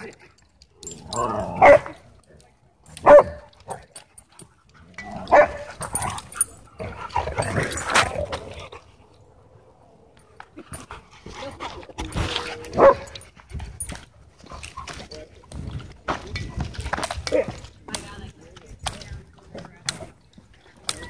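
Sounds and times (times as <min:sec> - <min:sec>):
dogs barking: 0:01.4 - 0:02.0, 0:03.0 - 0:03.8, 0:05.2 - 0:06.1, 0:12.7 - 0:13.2.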